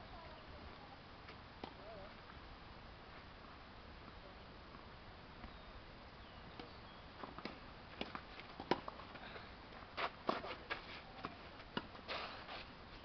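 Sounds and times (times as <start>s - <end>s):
shoes scuffing on clay: 9.9s - 13.0s.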